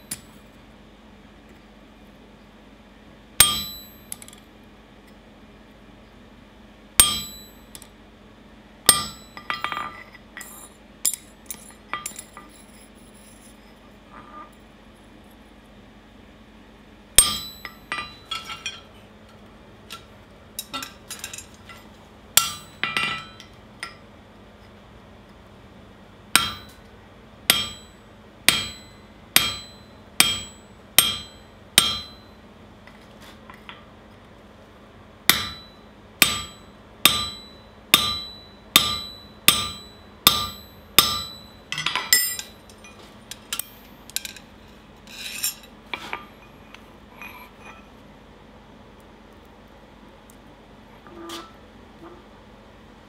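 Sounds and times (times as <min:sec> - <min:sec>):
anvil ringing: 0:03.4 - 0:04.3, 0:07.0 - 0:07.8, 0:08.9 - 0:10.7, 0:17.2 - 0:18.8, 0:22.4 - 0:23.5, 0:26.4 - 0:26.8, 0:27.5 - 0:32.4, 0:35.3 - 0:42.6
hammer striking steel on anvil: 0:03.4 - 0:04.4, 0:07.0 - 0:07.9, 0:08.9 - 0:12.5, 0:17.2 - 0:18.9, 0:22.4 - 0:24.0, 0:26.4 - 0:26.9, 0:27.5 - 0:32.4, 0:35.3 - 0:44.4.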